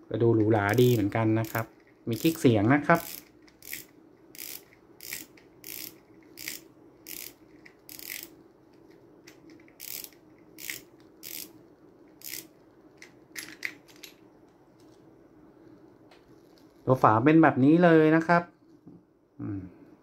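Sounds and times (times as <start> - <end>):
fishing reel drag clicks: 0.7 - 8.3, 9.8 - 11.5, 12.2 - 12.5.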